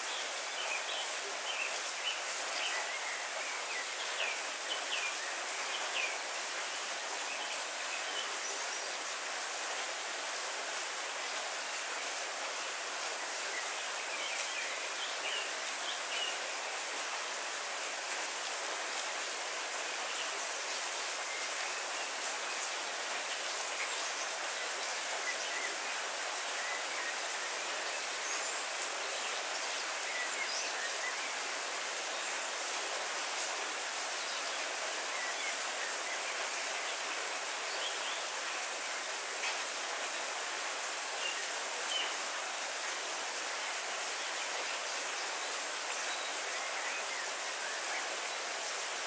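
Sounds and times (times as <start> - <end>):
heavy rain falling: 0.0 - 49.0.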